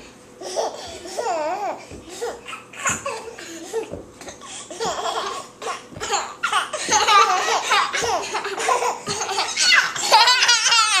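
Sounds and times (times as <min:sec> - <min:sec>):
baby laughing: 0:04.7 - 0:11.0.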